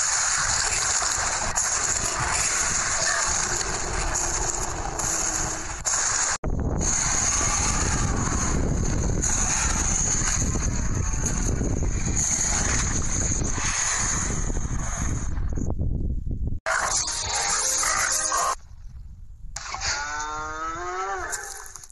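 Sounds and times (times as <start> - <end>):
wind buffeting microphone: 6.4 - 16.6.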